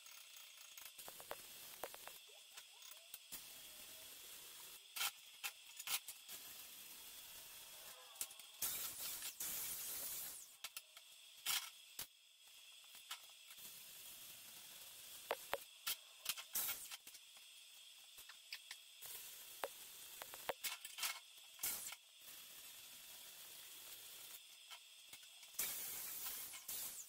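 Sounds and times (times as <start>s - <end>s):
welding arc crackling and hissing: 0.0s - 27.0s
sharp pops and clicks: 0.8s - 3.2s, 15.3s - 17.2s, 19.6s - 21.0s.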